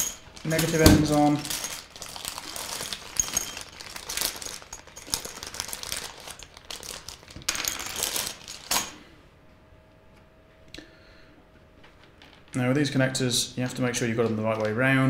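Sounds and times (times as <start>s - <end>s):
plastic bag crinkling: 0.0s - 9.0s
plastic parts clattering onto mat: 0.0s - 9.0s.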